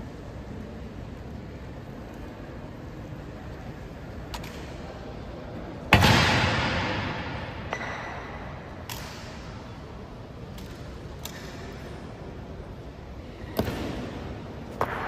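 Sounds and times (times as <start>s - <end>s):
loud bang with echo: 5.9s - 8.5s.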